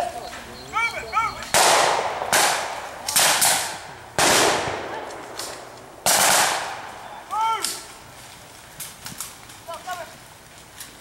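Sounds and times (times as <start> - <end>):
rifle shots echoing: 1.5 - 7.0.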